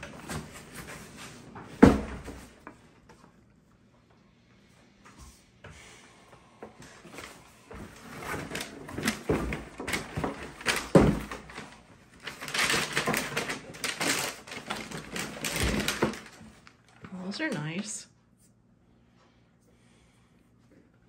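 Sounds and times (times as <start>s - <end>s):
paper wrapping rustling: 7.1s - 17.4s.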